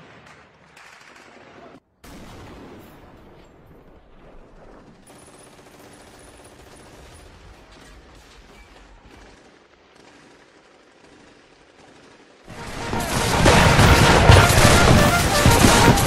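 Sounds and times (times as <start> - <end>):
distant rifle and machine-gun fire: 4.5 - 16.0.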